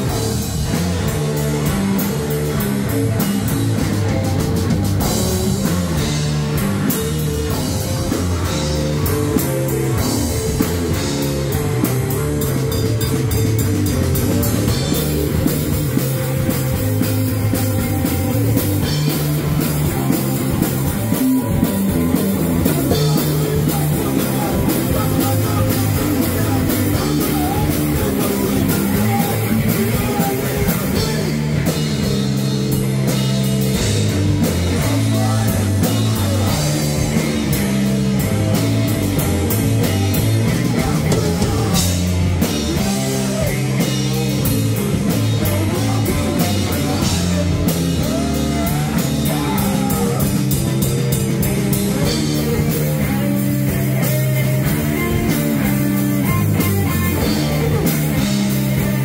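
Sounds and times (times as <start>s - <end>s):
drum kit with crashing cymbals: 0.0s - 59.0s
electric guitar: 0.0s - 59.0s
vocalist singing: 14.5s - 32.8s, 33.8s - 38.0s, 40.1s - 59.0s.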